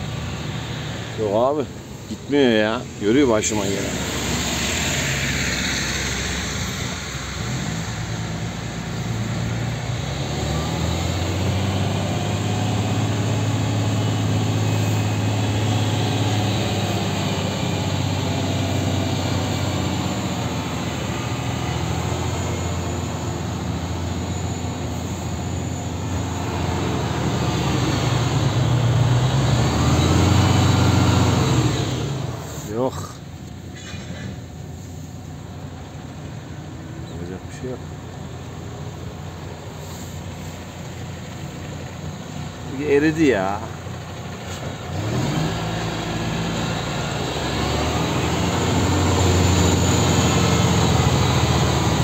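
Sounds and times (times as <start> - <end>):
truck diesel engine running: 0.0 - 52.0.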